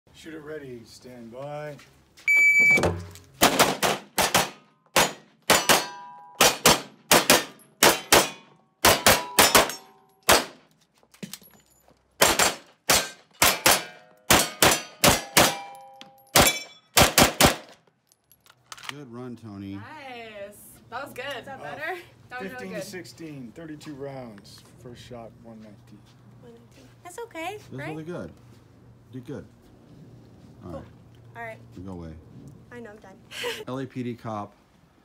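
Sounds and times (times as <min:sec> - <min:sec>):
shot timer beep: 0:02.3 - 0:02.9
rapid pistol shots: 0:03.4 - 0:10.6, 0:12.2 - 0:15.7, 0:16.4 - 0:17.7
bullets ringing on steel targets: 0:04.4 - 0:06.6, 0:07.2 - 0:10.5, 0:12.4 - 0:17.0.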